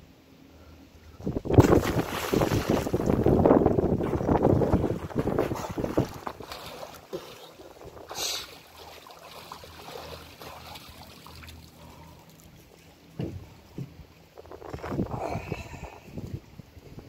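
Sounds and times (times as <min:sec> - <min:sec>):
water splashing and lapping: 0:01.5 - 0:16.4.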